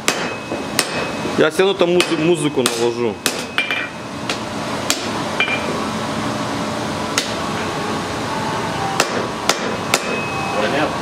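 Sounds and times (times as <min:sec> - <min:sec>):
hammer striking metal on anvil: 0:00.0 - 0:01.2, 0:02.0 - 0:04.0, 0:04.9 - 0:05.8, 0:09.0 - 0:10.3.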